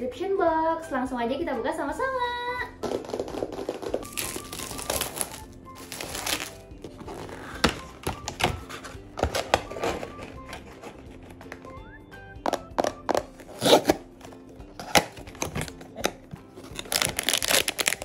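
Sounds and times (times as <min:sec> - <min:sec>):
soft background music: 0:00.0 - 0:18.0
cardboard lid rustling: 0:03.6 - 0:11.5
taps on small boxes: 0:12.4 - 0:13.3.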